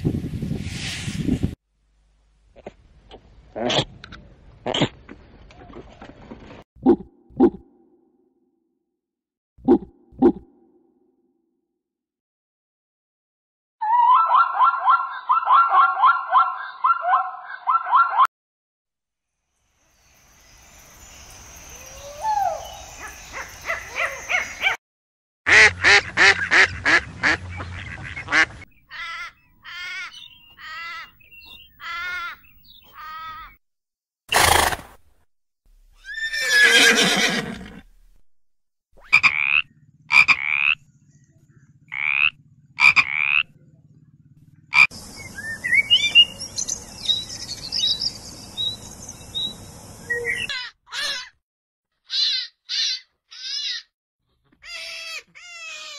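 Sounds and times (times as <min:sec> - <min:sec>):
small birds chirping: 0:19.8 - 0:24.8, 0:27.5 - 0:33.6, 0:39.7 - 0:50.7
horse whinny: 0:34.3 - 0:34.9, 0:36.0 - 0:37.9.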